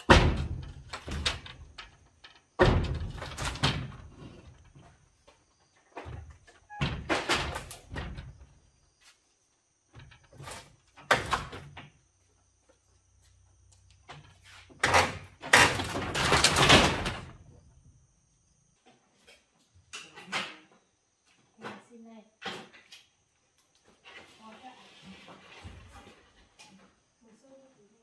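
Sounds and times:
building work scraping and clattering: 0.0 - 17.7, 21.6 - 27.2.

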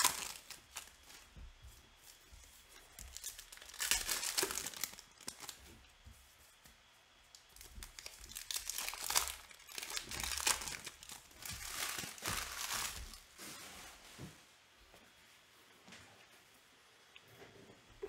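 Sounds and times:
foil wrapper tearing and crinkling: 0.0 - 1.2, 2.8 - 5.7, 7.5 - 13.4.

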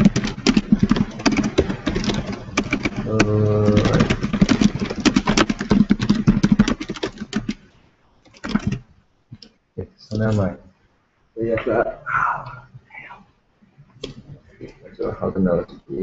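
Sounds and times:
typing on a computer keyboard: 0.0 - 8.8.

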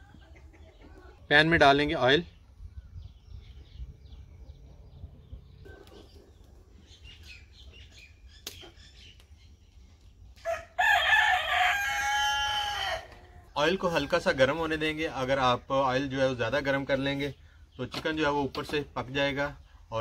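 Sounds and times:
rooster crowing: 10.4 - 13.2.

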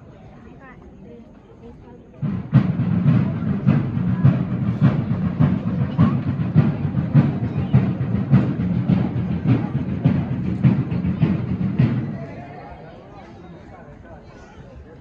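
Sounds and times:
deep drum beats: 2.1 - 13.1.

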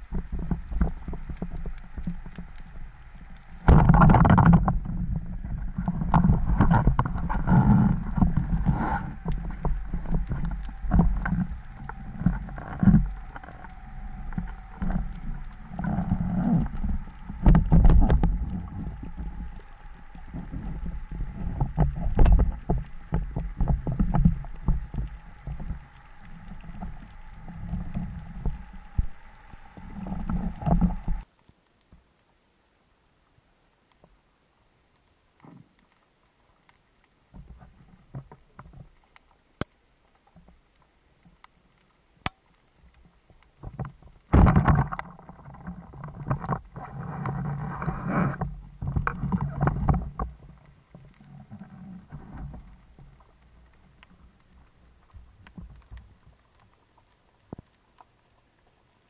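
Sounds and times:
gear clicks and knocks: 0.0 - 31.3, 42.2 - 58.1
water sloshing and rushing underwater: 0.0 - 59.0.

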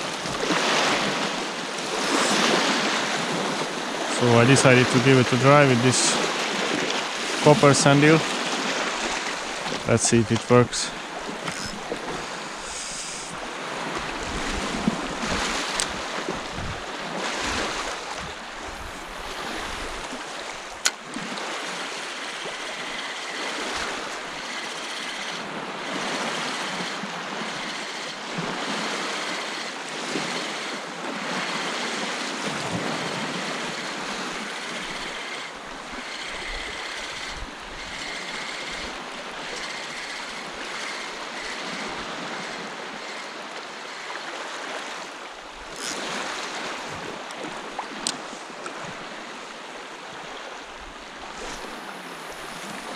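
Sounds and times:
small waves lapping: 0.0 - 52.9
wind on the microphone: 13.9 - 20.1.

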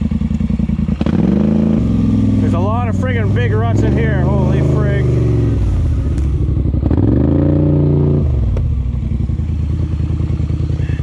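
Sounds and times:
quad engine revving: 0.9 - 8.8.

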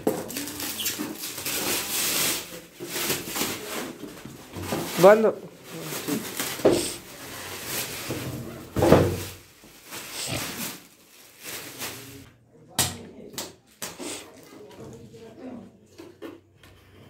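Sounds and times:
plastic wrap crinkling: 0.0 - 12.3.

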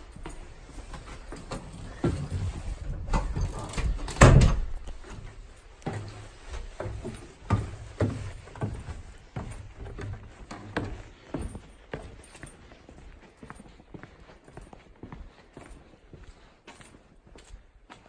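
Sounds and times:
footsteps on wooden stairs: 0.0 - 18.0
door being handled: 1.4 - 4.9
loud door thump: 4.1 - 4.7.

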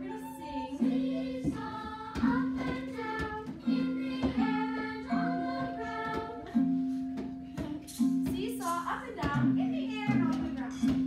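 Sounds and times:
woman and children singing: 0.0 - 6.7.

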